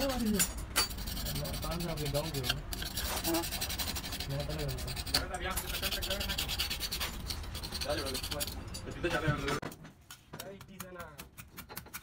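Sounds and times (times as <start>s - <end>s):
metal scraper rasping on metal: 0.0s - 9.6s.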